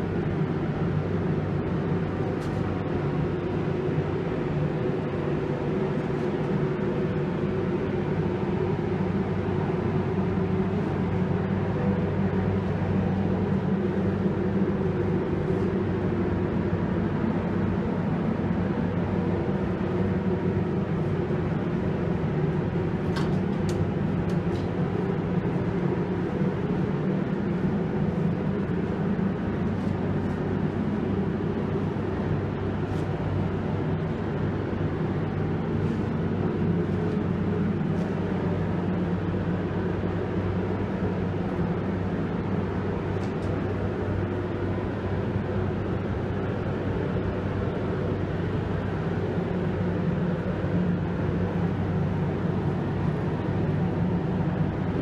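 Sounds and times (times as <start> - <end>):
machine drone with low hum: 0.0 - 55.0.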